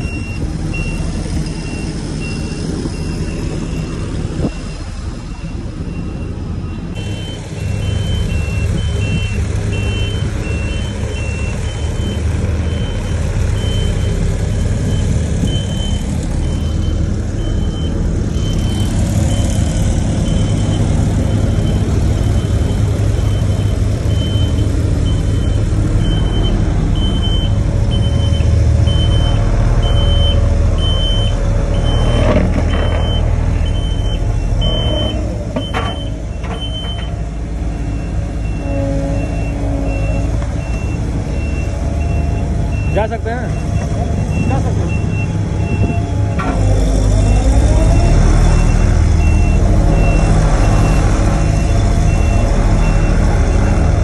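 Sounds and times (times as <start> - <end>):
road roller diesel engine: 0.0 - 54.0
backup alarm beeping: 1.6 - 14.2
metal clanks: 35.5 - 37.2.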